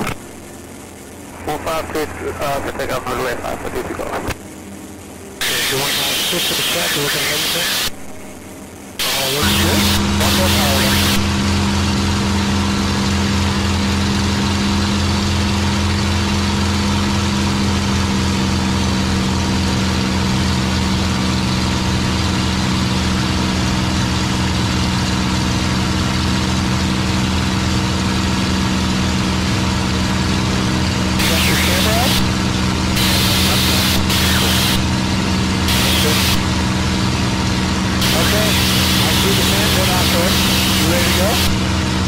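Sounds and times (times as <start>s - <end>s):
aircraft engine drone: 0.0s - 42.0s.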